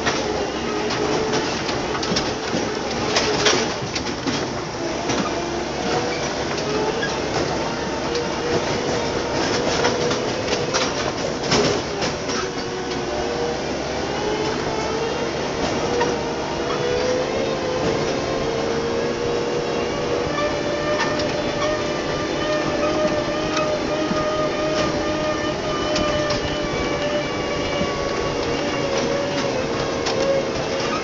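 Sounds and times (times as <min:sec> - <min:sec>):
knocks and rattles: 0:00.0 - 0:13.0
tractor engine running: 0:00.0 - 0:31.0.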